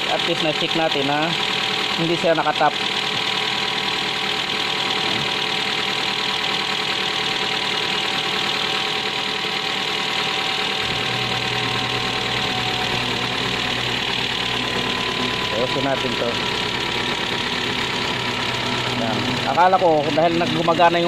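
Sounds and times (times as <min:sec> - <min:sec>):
car engine idling: 0:00.0 - 0:21.0
electric radiator fan running: 0:00.0 - 0:21.0
low hum: 0:10.8 - 0:21.0.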